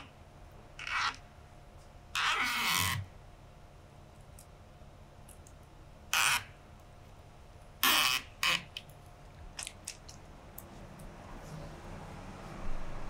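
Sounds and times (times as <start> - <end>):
cane scratching through chair weave: 0.8 - 1.2, 2.2 - 3.1.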